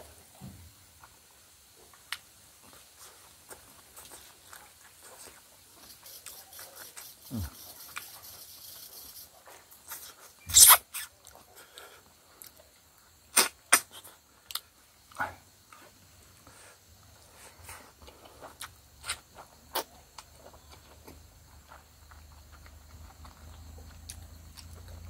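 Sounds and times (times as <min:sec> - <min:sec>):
man chewing food: 0:01.0 - 0:25.0
lip-smacks: 0:13.3 - 0:14.6.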